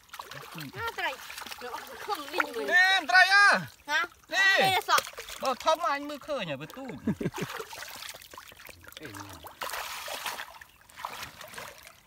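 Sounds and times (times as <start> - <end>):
muddy water splashing: 0.0 - 12.0.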